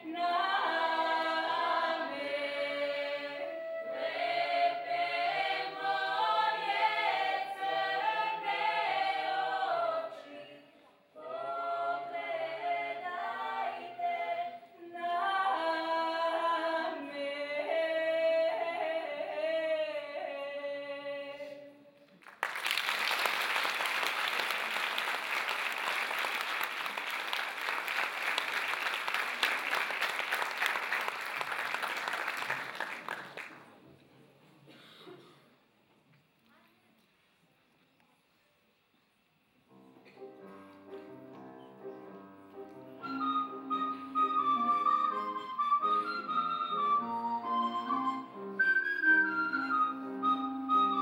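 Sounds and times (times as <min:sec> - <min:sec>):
vocal group singing in harmony: 0:00.0 - 0:21.8
audience applause: 0:22.2 - 0:33.7.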